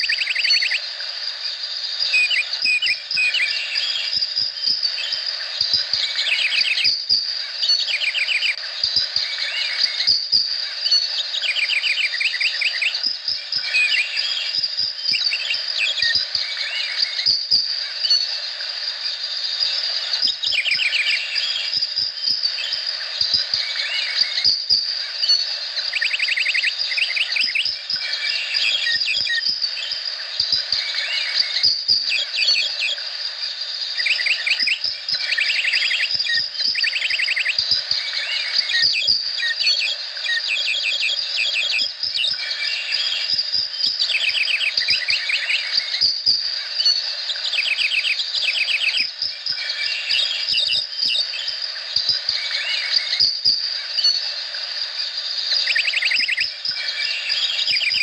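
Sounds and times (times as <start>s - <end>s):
high-pitched insect drone: 0.0s - 58.0s
quick chirping calls: 34.0s - 43.4s, 55.5s - 58.0s.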